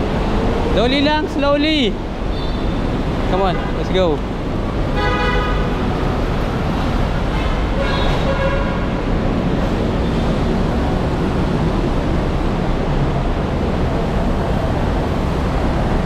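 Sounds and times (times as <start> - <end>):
low rumble of road traffic: 0.0 - 16.0.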